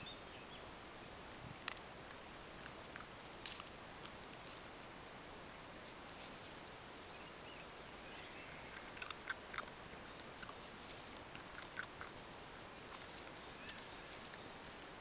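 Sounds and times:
faint steady hiss: 0:00.0 - 0:15.0
dogs crunching kibble: 0:08.7 - 0:14.4.

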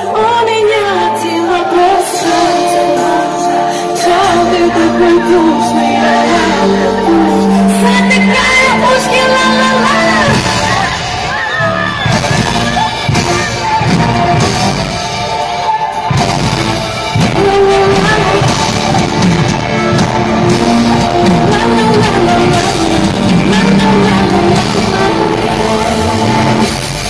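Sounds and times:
person singing: 0:00.0 - 0:11.4, 0:17.1 - 0:27.0
live pop band: 0:00.0 - 0:27.0.

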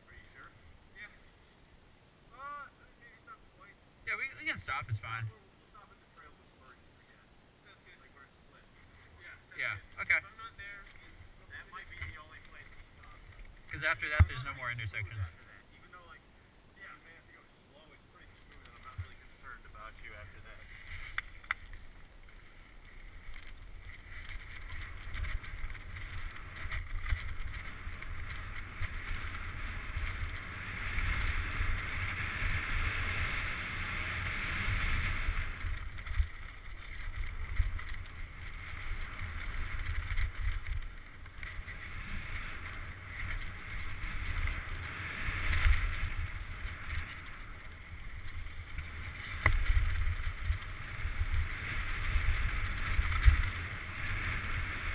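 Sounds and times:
tyres rolling over gravel: 0:09.7 - 0:15.6, 0:18.1 - 0:54.9
bike knocking over rocks: 0:20.8 - 0:32.7, 0:42.4 - 0:53.7.

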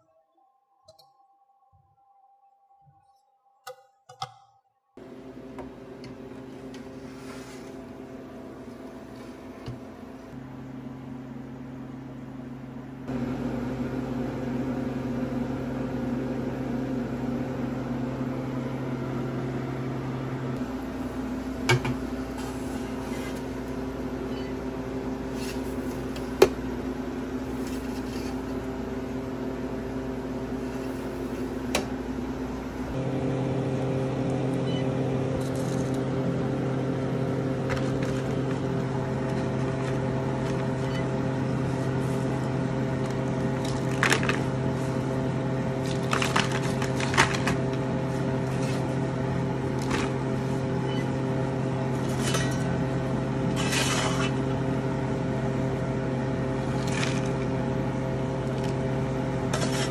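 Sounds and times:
freeze dryer humming: 0:05.0 - 0:59.9.

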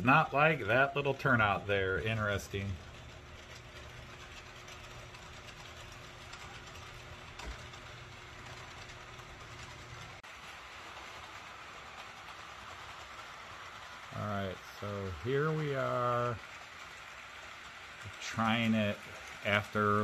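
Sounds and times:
model train rolling hiss: 0:00.0 - 0:20.0.

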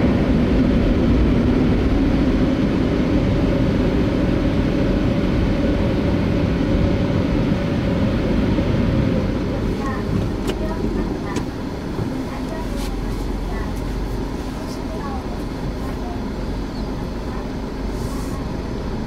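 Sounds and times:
car wash machine whirring: 0:04.9 - 0:19.0.

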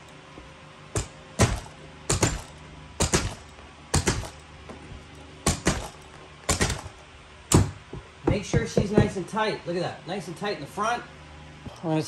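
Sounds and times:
knee kicker thuds: 0:01.0 - 0:04.4, 0:05.4 - 0:09.2.

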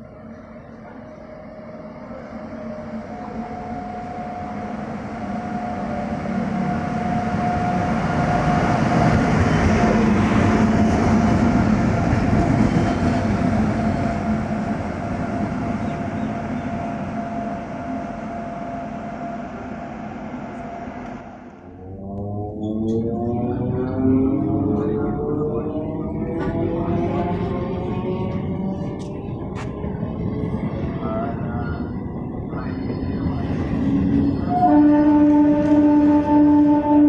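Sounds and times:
locomotive rumble and wheel noise: 0:00.0 - 0:37.0.

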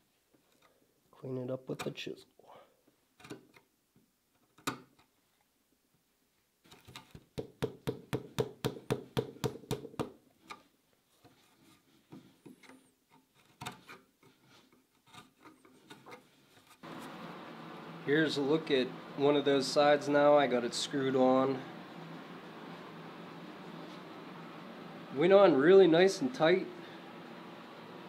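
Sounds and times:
chisel tapping: 0:07.4 - 0:10.2
chisel scraping wood: 0:11.4 - 0:17.1.

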